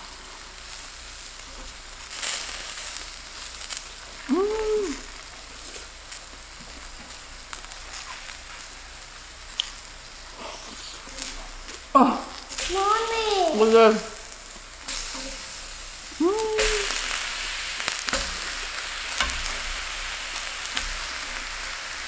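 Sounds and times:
zucchini sizzling on griddle: 0:00.0 - 0:22.0
person humming: 0:04.3 - 0:05.1, 0:12.0 - 0:14.2, 0:16.1 - 0:17.1.

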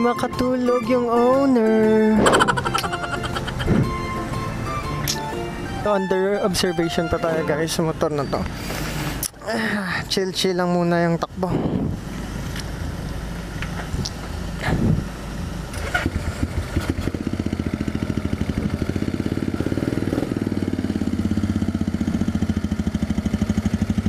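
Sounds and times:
motorcycle engine starting and idling: 0:12.2 - 0:24.0.

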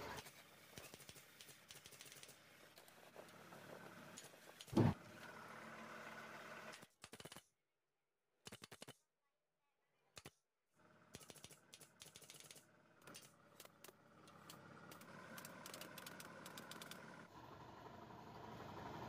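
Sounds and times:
sharp irregular clicks: 0:00.8 - 0:02.4, 0:06.7 - 0:07.5, 0:08.4 - 0:09.1, 0:11.1 - 0:17.2.

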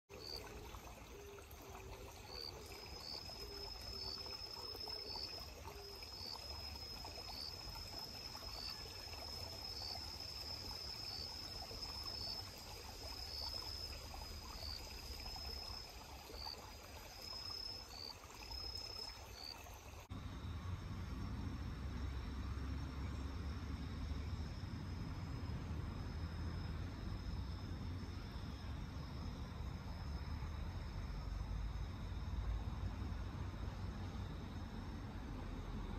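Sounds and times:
cricket trilling: 0:00.1 - 0:20.5
cricket chirps: 0:00.1 - 0:35.9
faint background hiss: 0:00.1 - 0:35.9.

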